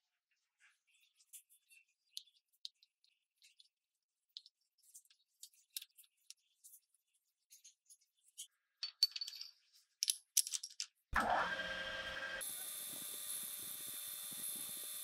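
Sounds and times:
metallic clicks of steel parts: 8.8s - 11.0s
lathe motor running: 11.2s - 15.0s.

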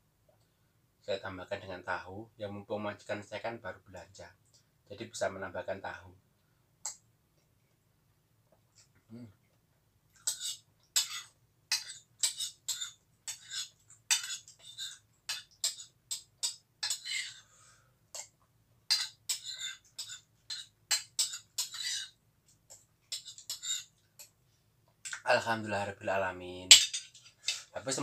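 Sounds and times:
spoon scraping ceramic bowl: 10.2s - 17.4s, 18.9s - 24.3s.

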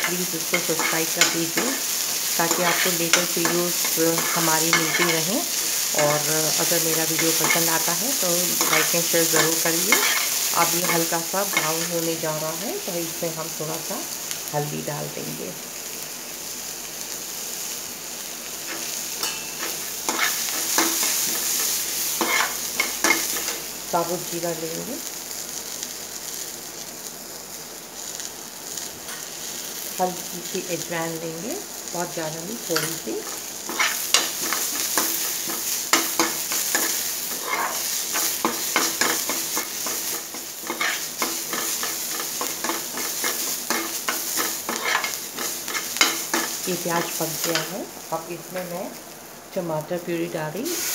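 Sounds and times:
onions sizzling in oil: 0.0s - 50.9s
steel spoon scraping pan: 0.5s - 5.6s, 8.6s - 11.8s, 18.7s - 23.5s, 33.7s - 46.6s.

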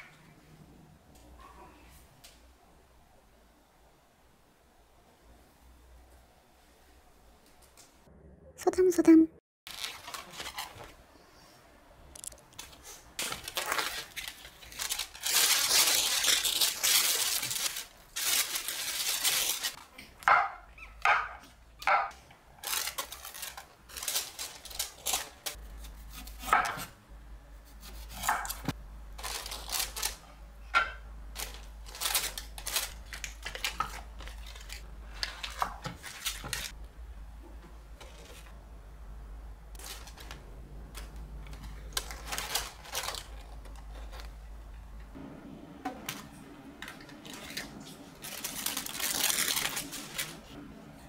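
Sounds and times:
wrapping crinkling and tearing: 9.7s - 11.0s, 12.1s - 19.8s, 22.5s - 25.6s, 28.5s - 30.2s, 31.3s - 36.8s, 39.8s - 40.4s, 41.0s - 44.4s, 46.9s - 50.6s.

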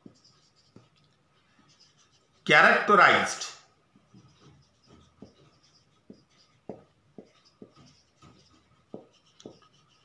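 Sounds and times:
marker writing on whiteboard: 0.0s - 10.0s
marker tip tapping board: 4.1s - 10.0s.

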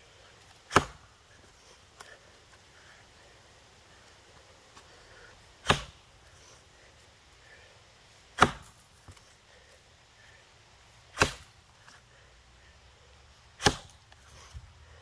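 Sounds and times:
axe chopping into log: 0.7s - 1.1s, 5.6s - 6.0s, 8.4s - 9.2s, 11.1s - 11.5s, 13.6s - 14.0s.

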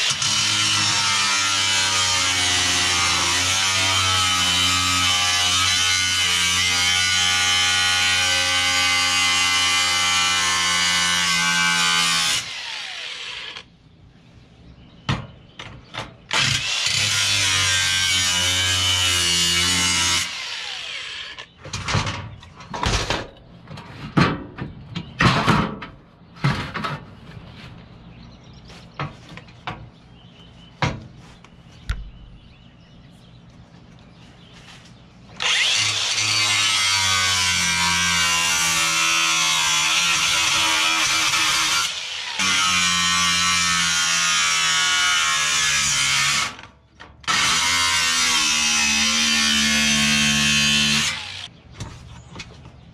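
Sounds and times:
angle grinder cutting steel: 0.0s - 13.7s, 16.3s - 21.6s, 35.4s - 46.6s, 47.3s - 51.5s.

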